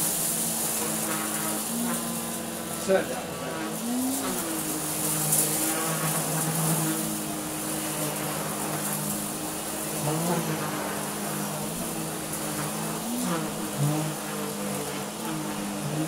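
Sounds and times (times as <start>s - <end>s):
vacuum cleaner running: 0.0s - 16.0s.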